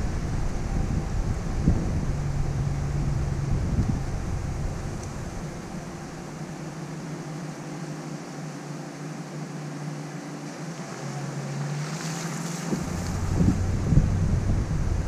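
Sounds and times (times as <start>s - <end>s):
vehicle engine running: 0.0s - 6.9s, 9.6s - 15.0s
wind buffeting microphone: 0.0s - 6.9s, 12.5s - 15.0s.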